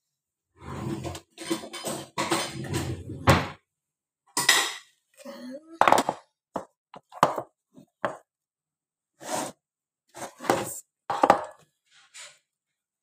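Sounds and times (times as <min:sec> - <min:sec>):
spatula scraping plastic bowl: 0:09.2 - 0:10.8.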